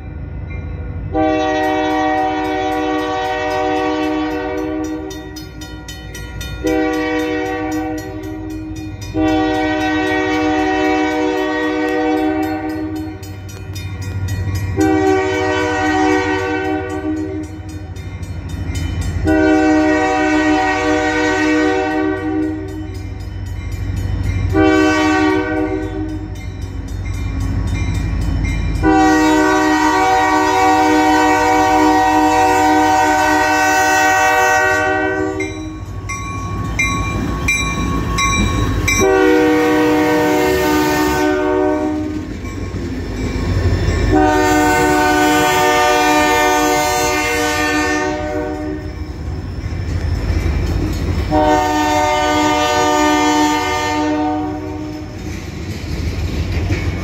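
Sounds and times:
locomotive air horn blasts: 0:01.1 - 0:05.2, 0:06.6 - 0:13.2, 0:14.8 - 0:17.6, 0:19.2 - 0:22.8, 0:24.5 - 0:26.4, 0:28.8 - 0:35.8, 0:38.9 - 0:42.2, 0:44.1 - 0:49.0, 0:51.3 - 0:55.2.

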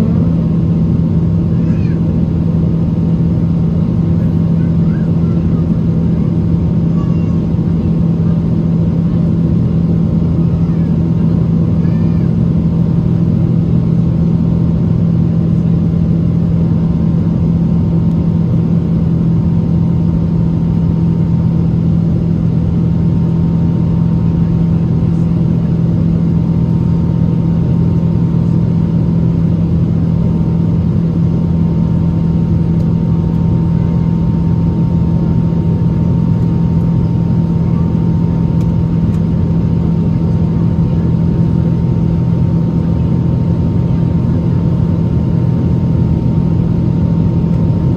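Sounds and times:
jet engine roar in cabin: 0:00.0 - 0:47.9.

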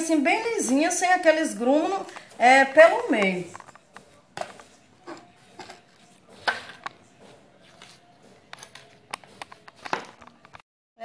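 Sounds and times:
scraper working soft dough: 0:00.8 - 0:10.6.

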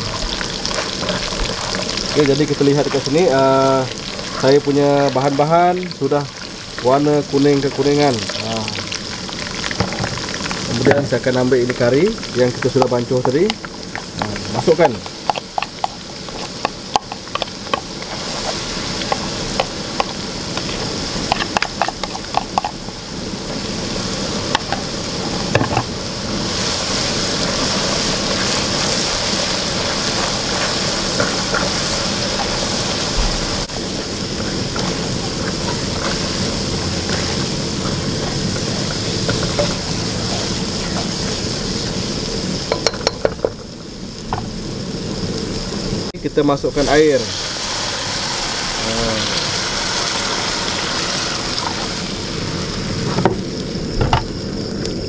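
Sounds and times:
paste sizzling in hot oil: 0:00.0 - 0:55.0
spatula scraping a wok: 0:15.0 - 0:22.8, 0:33.9 - 0:41.6.

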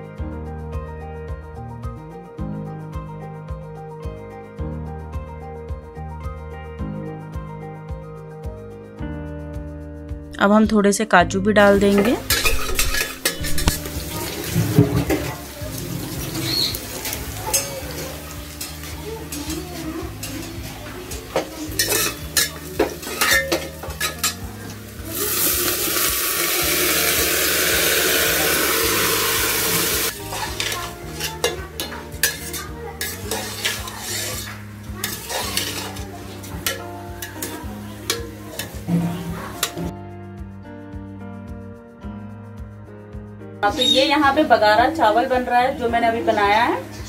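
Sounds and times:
metal ladle scraping a steel pot: 0:11.9 - 0:19.5, 0:20.2 - 0:24.4, 0:27.4 - 0:39.9
loud steady sizzle: 0:12.3 - 0:39.7.

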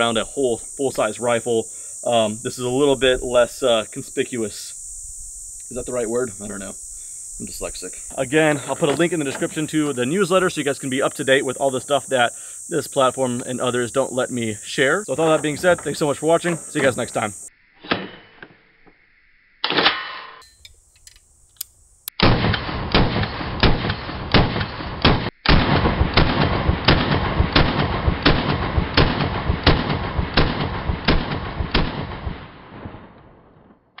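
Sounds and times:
rifle gunshots: 0:22.2 - 0:33.7
gunshot echo: 0:22.2 - 0:33.8.

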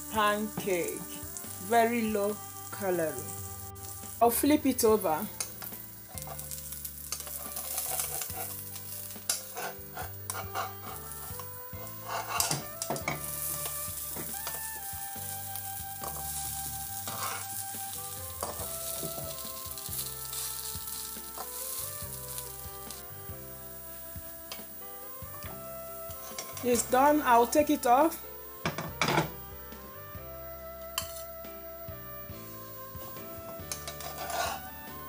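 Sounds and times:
batter sizzling in frying pan: 0:00.0 - 0:35.0
metal spatula scraping pan: 0:05.6 - 0:14.6, 0:17.0 - 0:17.6, 0:26.2 - 0:26.9, 0:31.0 - 0:31.3, 0:33.7 - 0:34.8.

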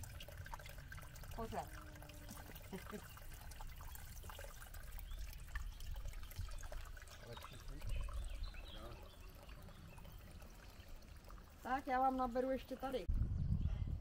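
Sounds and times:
water drips: 0:00.0 - 0:13.1
water trickling into stone basin: 0:00.0 - 0:14.0
low rumble: 0:13.1 - 0:14.0.

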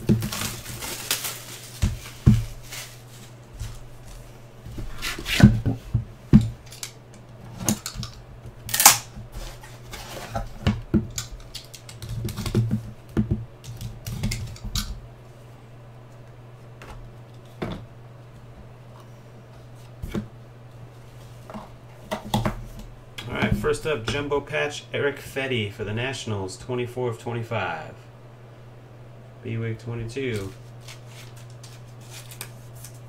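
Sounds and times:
low steady hum: 0:00.0 - 0:33.0
cardboard sliding and scraping: 0:01.6 - 0:05.8.

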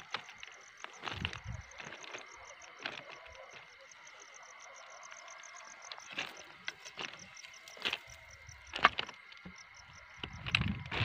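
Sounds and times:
footsteps crunching on gravel: 0:00.0 - 0:04.3, 0:05.4 - 0:09.6
insect chirping: 0:00.0 - 0:11.0.

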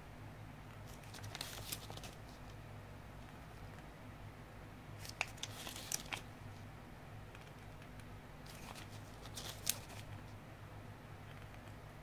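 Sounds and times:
low steady hum: 0:00.0 - 0:12.0
packaging crinkling and clicking: 0:00.9 - 0:02.2, 0:05.0 - 0:06.3, 0:07.4 - 0:10.2.

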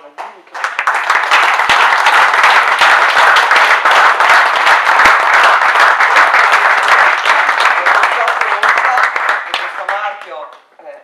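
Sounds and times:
audience applause: 0:00.6 - 0:10.4.

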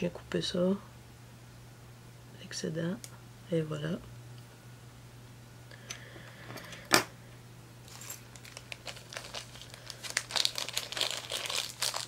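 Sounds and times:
rustling and crinkling materials: 0:07.8 - 0:12.0.

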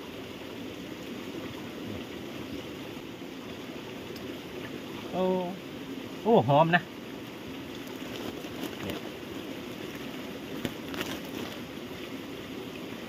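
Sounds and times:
steady background hiss: 0:00.0 - 0:13.0
plastic sack rustling: 0:07.8 - 0:11.8.

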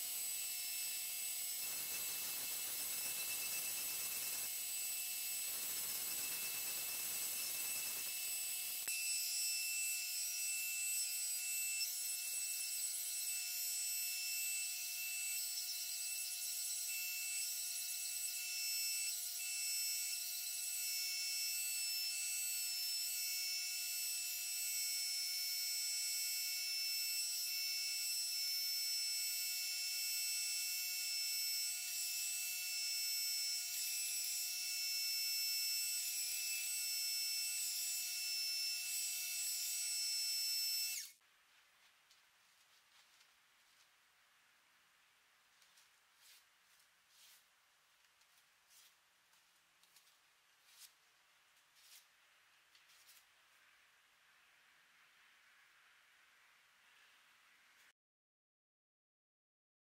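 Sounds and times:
belt grinder whining: 0:00.0 - 0:41.2.

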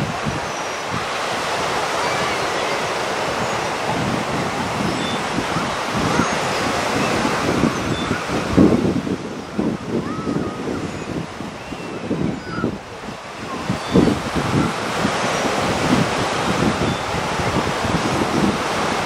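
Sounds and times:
small waves breaking on beach: 0:00.0 - 0:19.0
wind buffeting microphone: 0:00.0 - 0:19.0.

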